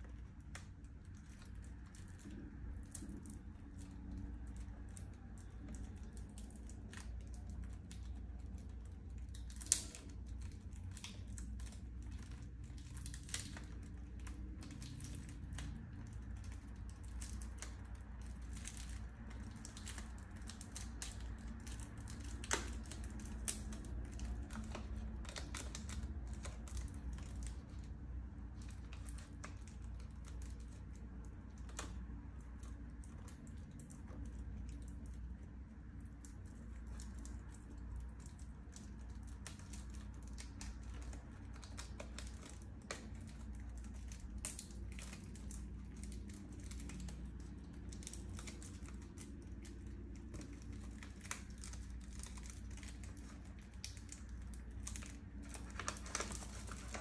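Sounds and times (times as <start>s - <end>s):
plastic case clicks and crinkles: 36.8s - 57.0s.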